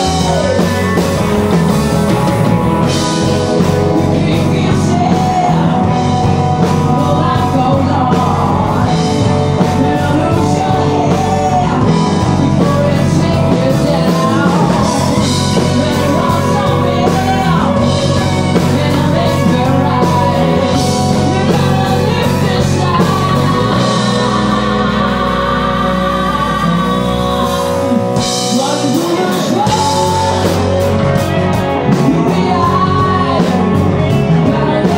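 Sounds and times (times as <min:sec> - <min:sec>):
live rock band playing: 0:00.0 - 0:34.9
woman singing lead: 0:00.0 - 0:34.9.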